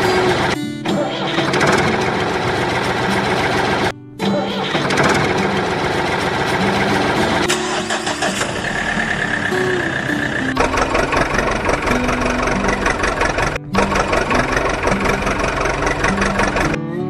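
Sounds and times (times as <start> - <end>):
vehicle engine running: 0.0 - 0.6, 1.2 - 16.8
simple tune of held notes: 0.0 - 4.6.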